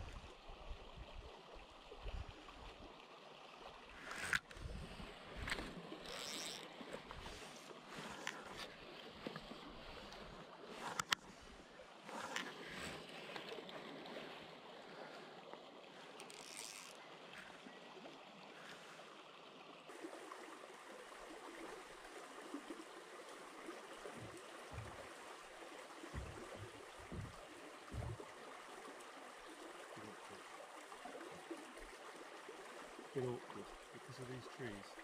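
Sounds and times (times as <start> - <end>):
river water trickling: 0.0 - 35.0
low thumps: 26.2 - 28.2.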